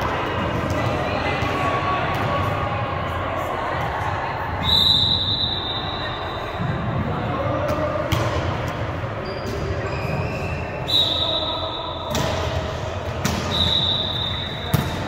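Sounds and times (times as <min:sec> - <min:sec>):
murmur of voices: 0:00.0 - 0:15.0.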